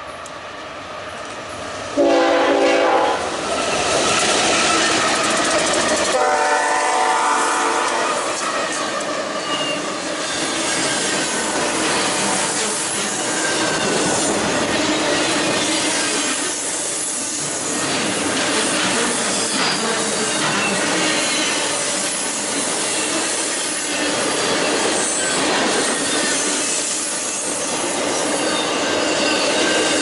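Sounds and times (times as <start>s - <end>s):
train horn chord: 2.0s - 3.3s, 6.1s - 8.4s
wheel squeals: 9.3s - 11.3s, 18.6s - 30.0s.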